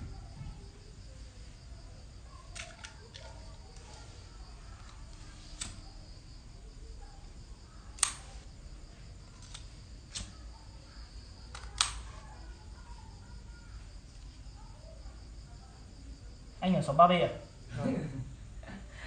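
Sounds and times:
sharp clicks: 8.0s - 8.3s, 11.5s - 12.1s.

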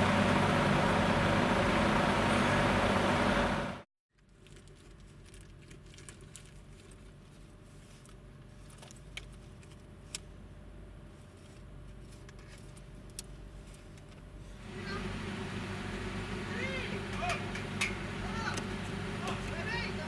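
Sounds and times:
car engine idling: 14.5s - 20.0s.

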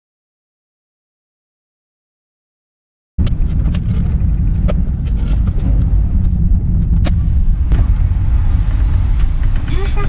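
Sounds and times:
car engine and road rumble: 3.2s - 10.0s.

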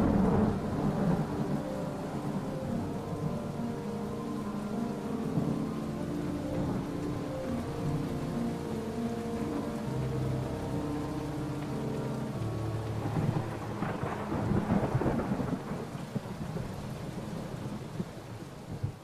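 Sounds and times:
rolling thunder: 0.0s - 11.7s, 12.5s - 19.0s
steady rain: 0.0s - 19.0s.

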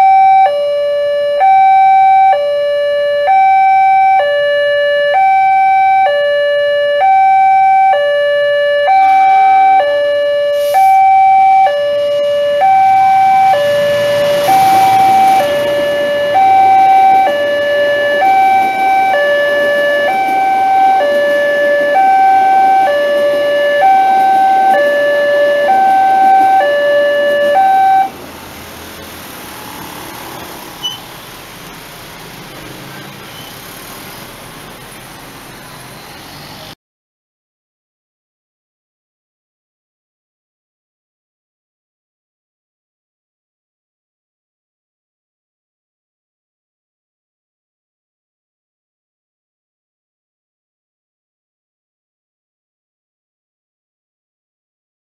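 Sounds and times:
level crossing alarm two tones: 0.0s - 28.2s
road traffic: 0.0s - 36.8s
train rushing past: 12.4s - 36.8s.

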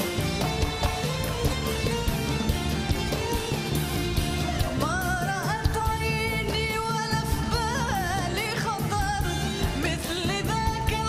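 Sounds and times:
live band with percussion: 0.0s - 11.0s
woman singing with vibrato: 4.6s - 11.0s.

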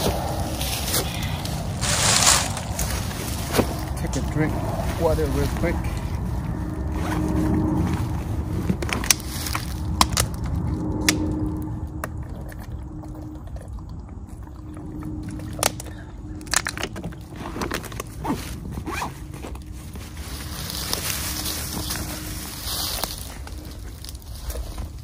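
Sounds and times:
rustling: 0.0s - 10.8s, 16.4s - 25.0s
low steady rumble: 0.0s - 25.0s
sharp clicks and snaps: 9.0s - 13.4s.

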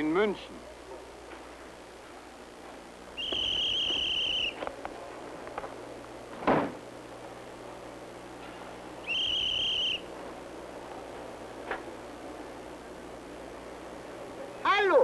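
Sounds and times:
high railway whistle blasts: 3.2s - 4.6s, 9.1s - 10.0s
heavy thump: 6.4s - 6.8s.

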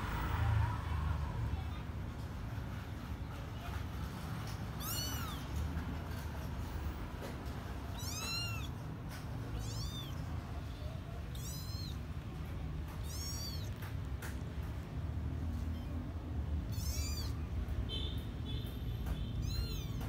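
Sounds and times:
kittens mewing: 4.5s - 5.8s, 7.4s - 17.9s, 19.0s - 20.0s.

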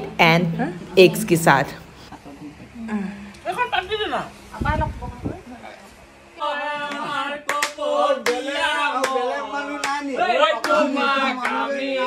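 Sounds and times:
men singing together: 6.4s - 12.0s
hand claps: 6.8s - 11.7s.

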